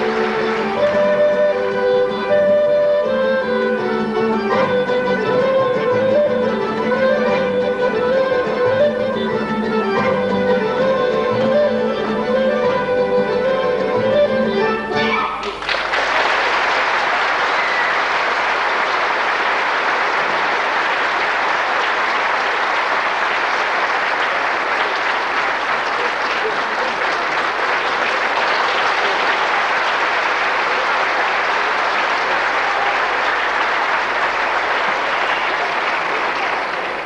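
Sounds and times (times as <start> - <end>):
audience applauding: 0.0 - 2.6, 15.4 - 37.0.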